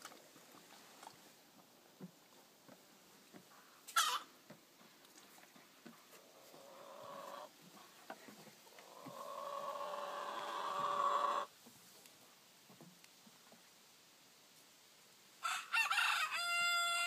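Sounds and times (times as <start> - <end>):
rooster crowing: 15.4 - 17.0.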